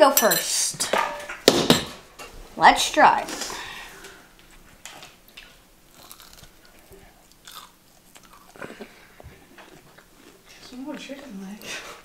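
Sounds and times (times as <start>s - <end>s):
child chewing crispy fish: 4.9s - 12.0s.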